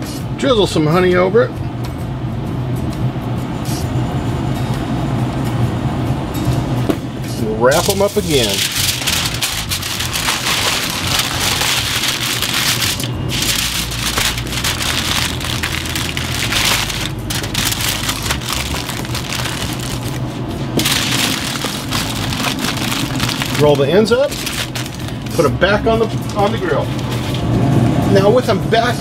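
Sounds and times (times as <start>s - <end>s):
aluminium foil crinkling: 7.7s - 25.5s.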